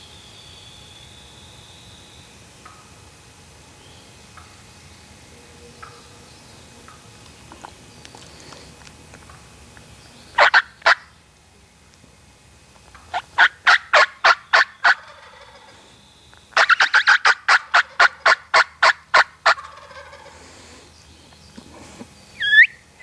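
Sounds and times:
turkey yelping: 10.4s - 11.2s, 13.1s - 15.8s, 16.6s - 20.5s, 22.4s - 22.8s.

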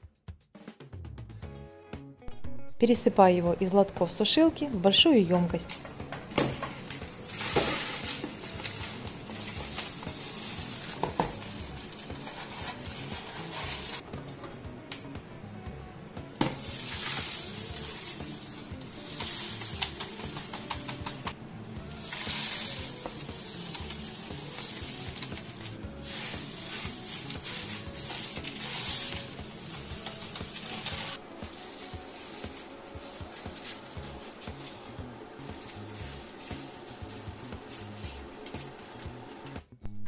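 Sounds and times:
background music: 0.0s - 40.0s
dry onion flakes rustling: 6.9s - 14.0s, 16.6s - 21.2s, 21.9s - 39.6s.

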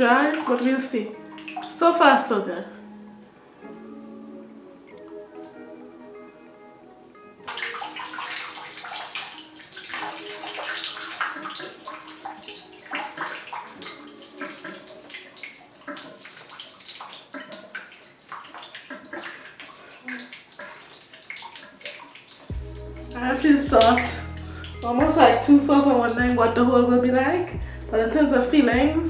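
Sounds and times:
background music: 0.0s - 19.2s, 22.2s - 29.0s
shower water spraying: 7.5s - 27.3s.

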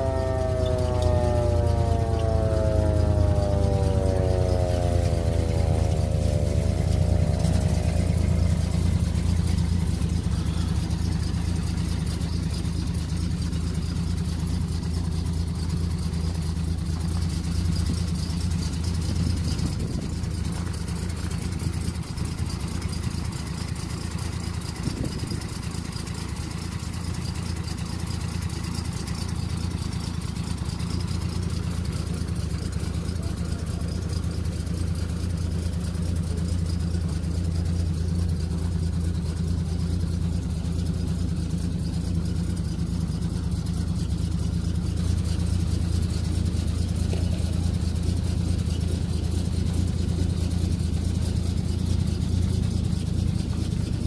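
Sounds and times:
falling whine: 0.0s - 23.1s
truck engine idling: 0.0s - 54.0s.

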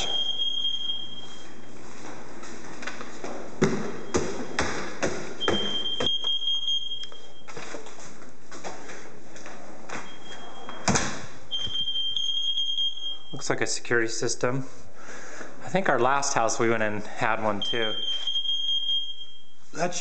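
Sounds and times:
smoke alarm tone: 0.0s - 1.7s, 5.4s - 7.6s, 10.0s - 10.9s, 11.5s - 13.5s, 17.6s - 19.7s.

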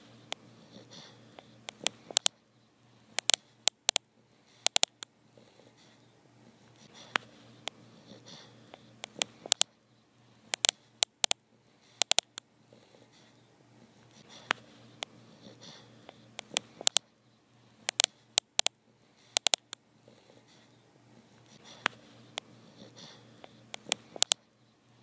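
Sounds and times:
dog snoring: 0.0s - 2.2s, 5.3s - 6.0s, 7.8s - 8.9s, 12.7s - 13.4s, 15.2s - 16.9s, 20.0s - 20.7s, 21.5s - 24.3s
sharp clicks: 1.4s - 2.4s, 3.2s - 5.1s, 8.7s - 9.8s, 10.5s - 11.4s, 12.0s - 12.5s, 16.1s - 17.1s, 17.8s - 19.8s, 23.4s - 24.4s.

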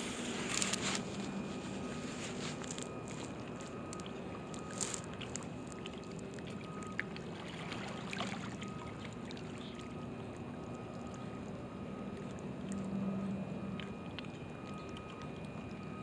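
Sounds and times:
wavelets lapping: 0.0s - 11.5s
faint steady hum: 0.0s - 16.0s
wind: 0.0s - 16.0s.

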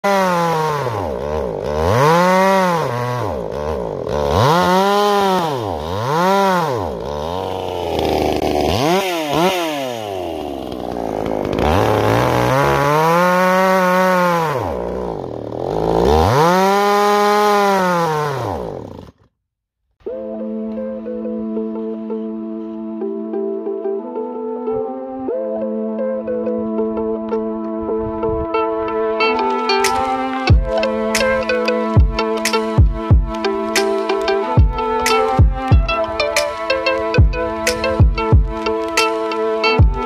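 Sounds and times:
chainsaw cutting through log: 0.0s - 19.3s, 28.6s - 40.0s.

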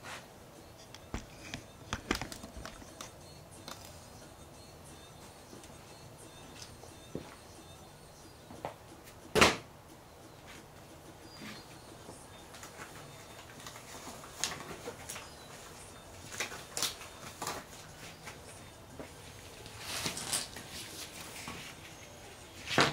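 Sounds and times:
tools clicking and knocking: 0.8s - 3.8s.

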